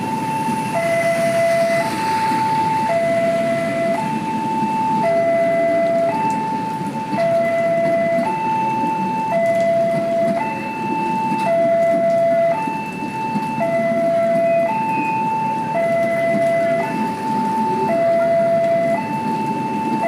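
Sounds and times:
train coaches rumbling: 0.0 - 20.0
two-tone crossing alarm: 0.0 - 20.0.

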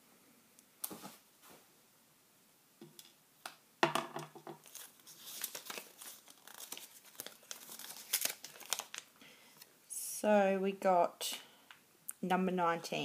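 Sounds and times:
plastic bag crinkling: 4.6 - 9.1.

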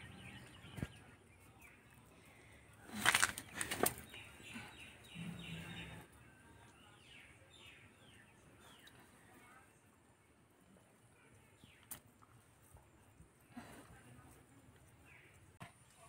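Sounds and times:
small birds chirping: 0.0 - 16.0
wet feathers rustling and tearing: 2.9 - 4.0.

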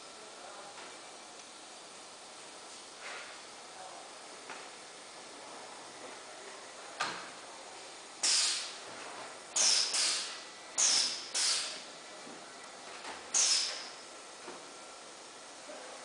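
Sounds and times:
compressed air hisses: 8.2 - 8.8, 9.6 - 11.8, 13.3 - 13.9.

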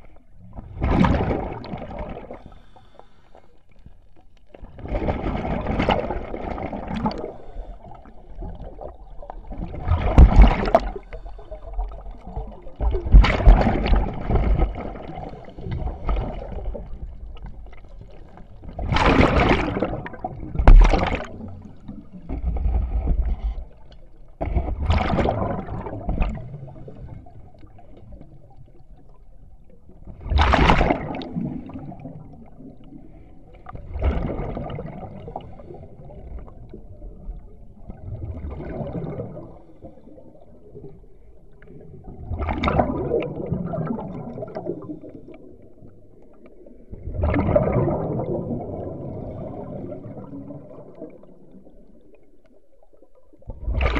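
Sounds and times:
exhaled bubbles underwater: 0.0 - 53.9
underwater gurgling: 0.0 - 53.9.

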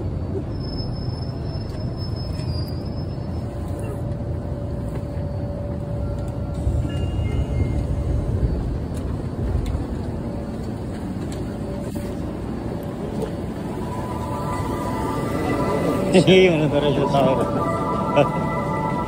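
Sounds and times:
subway train rumble: 0.0 - 19.0
faint steady whine: 4.0 - 19.0.

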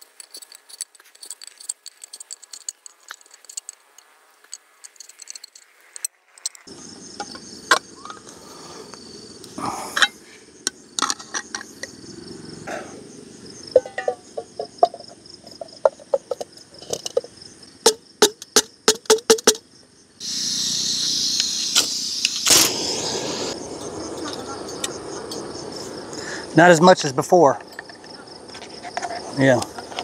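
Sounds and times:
night insects chirping: 0.0 - 30.0
loud rushing hiss: 20.2 - 23.8.

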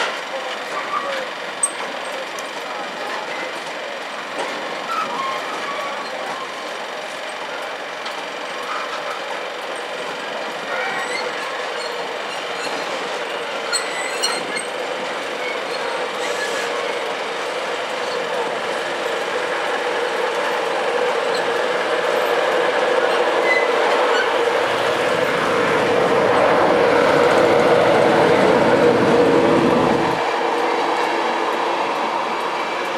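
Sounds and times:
freight train wagons rolling on rails: 0.0 - 32.9
deep rumble: 24.5 - 30.3.

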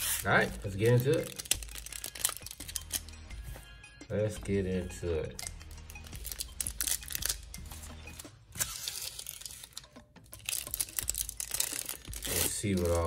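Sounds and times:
foil card pack crinkling: 0.0 - 3.1, 5.4 - 7.5, 8.1 - 13.0
background music: 0.0 - 13.0
person speaking: 12.2 - 13.0.

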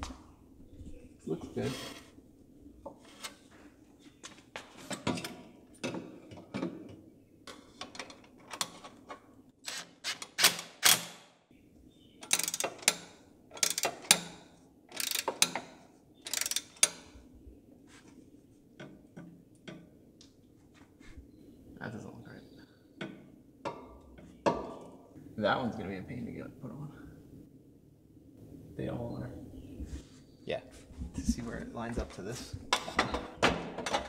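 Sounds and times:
socket ratchet clicking: 12.2 - 14.3, 14.9 - 15.6, 16.3 - 17.1.

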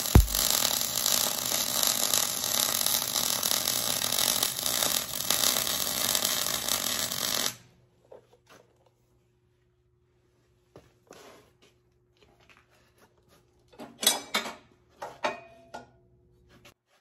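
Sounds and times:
welding arc crackling and sizzling: 0.0 - 7.5.

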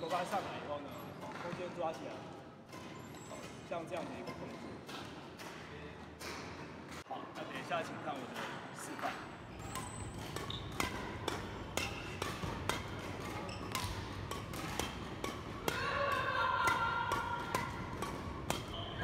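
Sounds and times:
racket hitting shuttlecock: 9.6 - 18.9.

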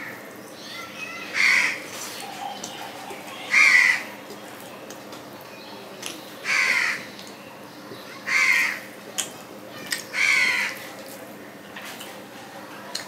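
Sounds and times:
crow cawing: 1.4 - 1.8, 3.4 - 4.1, 6.4 - 7.1, 8.3 - 8.9, 10.2 - 10.8.

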